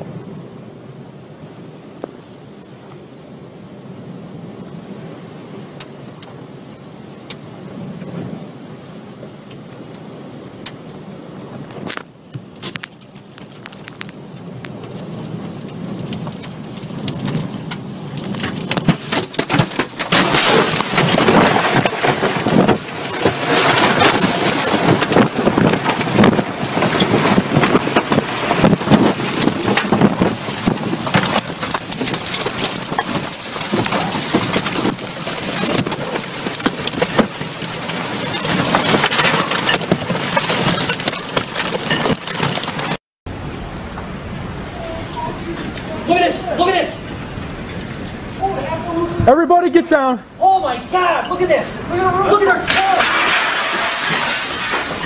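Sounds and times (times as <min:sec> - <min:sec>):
rushing storm wind: 0:00.0 - 0:55.0
rain and debris striking: 0:04.0 - 0:44.1, 0:51.4 - 0:55.0.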